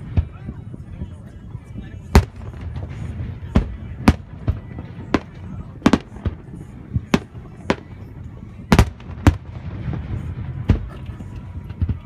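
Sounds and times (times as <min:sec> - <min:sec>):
fireworks bursting: 0:02.0 - 0:12.0.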